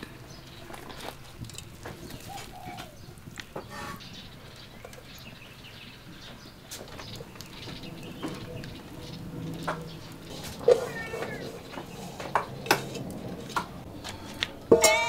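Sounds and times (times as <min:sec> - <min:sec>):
clicks and rustles of greens: 0:00.0 - 0:05.3, 0:06.0 - 0:14.6
faint bird calls: 0:02.0 - 0:05.3.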